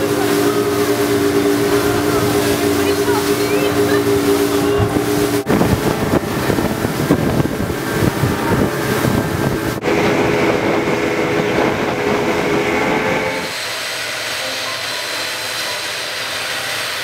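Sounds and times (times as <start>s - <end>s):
wind buffeting microphone: 0.0s - 13.6s
rushing water: 0.0s - 17.0s
speedboat engine drone: 0.0s - 17.0s.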